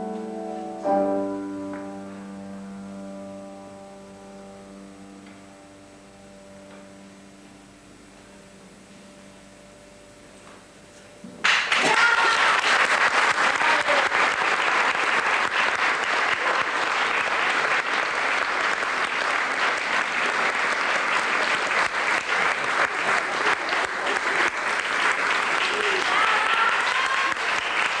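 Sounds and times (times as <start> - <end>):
faint steady hum: 0.0 - 11.4
audience applause: 11.4 - 28.0.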